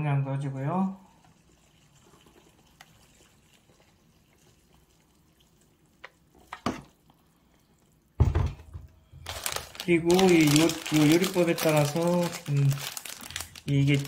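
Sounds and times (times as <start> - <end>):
water pouring into bowl: 1.0 - 8.2
kettle thumping on wooden table: 8.2 - 8.8.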